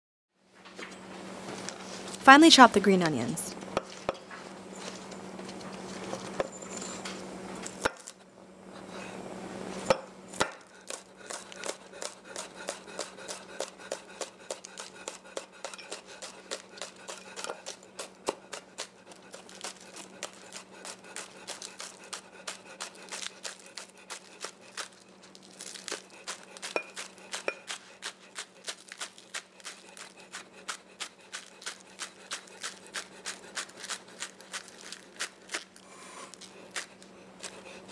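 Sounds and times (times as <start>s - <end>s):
knife chopping on wooden board: 9.9s - 19.4s, 26.7s - 28.2s.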